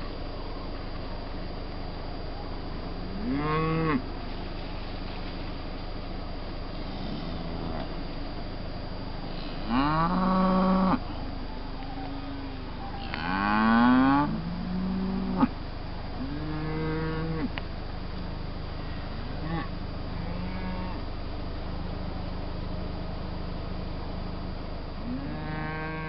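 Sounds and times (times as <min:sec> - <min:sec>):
cattle mooing: 0:03.1 - 0:04.0, 0:09.4 - 0:11.0, 0:12.2 - 0:15.5, 0:16.2 - 0:17.6, 0:19.4 - 0:21.1, 0:25.0 - 0:26.0.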